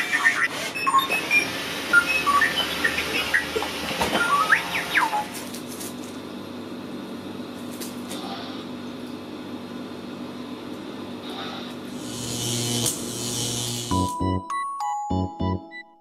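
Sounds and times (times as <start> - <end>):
low electric hum: 4.6 - 14.2.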